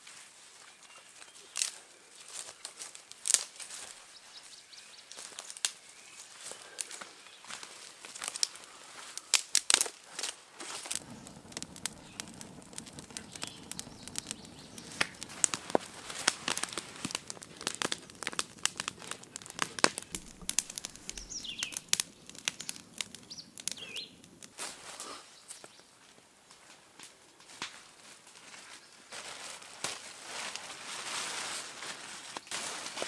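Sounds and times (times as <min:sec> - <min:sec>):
sharp crackles: 0:01.3 - 0:04.1, 0:05.0 - 0:33.0
crinkling and rustling: 0:09.7 - 0:25.2
short bird chirps: 0:21.2 - 0:21.8, 0:23.3 - 0:24.2.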